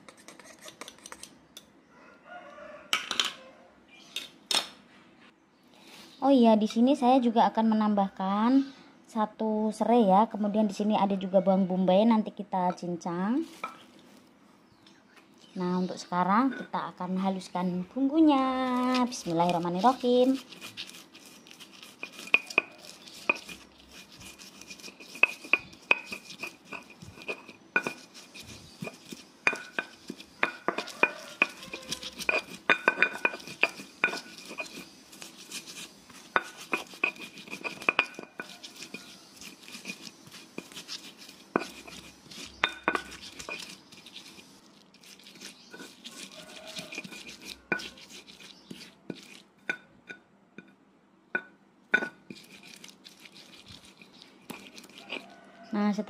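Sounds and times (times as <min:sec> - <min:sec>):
stone grinding scrapes: 0:00.0 - 0:01.3, 0:13.4 - 0:14.2, 0:16.3 - 0:16.8, 0:18.6 - 0:50.8, 0:51.4 - 0:55.7
stone pestle knocking on stone: 0:28.8 - 0:34.8.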